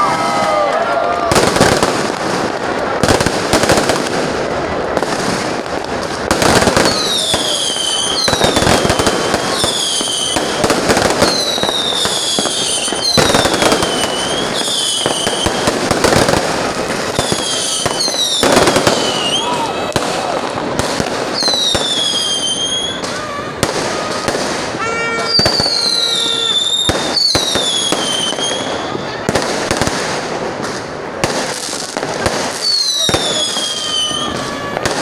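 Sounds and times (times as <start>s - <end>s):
fireworks crackling: 0.0s - 35.0s
falling firework whistles: 6.1s - 29.2s, 32.2s - 35.0s.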